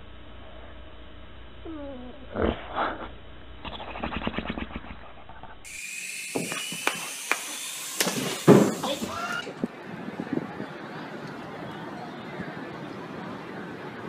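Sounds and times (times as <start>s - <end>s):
dog whimpering whine: 1.6s - 3.0s.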